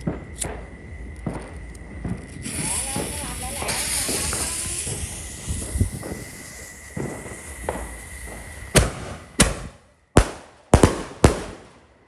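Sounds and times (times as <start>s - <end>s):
sharp firework bangs: 0.0s - 11.7s
hissing fuse: 1.1s - 9.8s.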